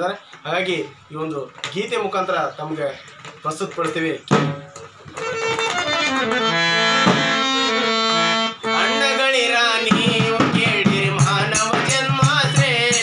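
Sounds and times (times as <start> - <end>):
harmonium chords: 4.5 - 13.0
man singing: 8.6 - 13.0.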